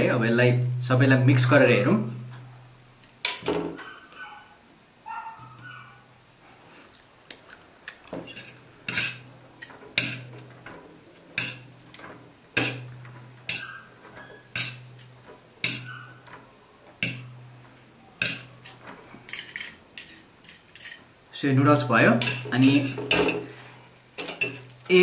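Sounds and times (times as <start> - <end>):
cutlery clinking on ceramic plate: 13.5 - 14.9, 15.6 - 16.0, 17.0 - 17.4, 18.2 - 21.0, 22.2 - 23.5, 24.2 - 24.8.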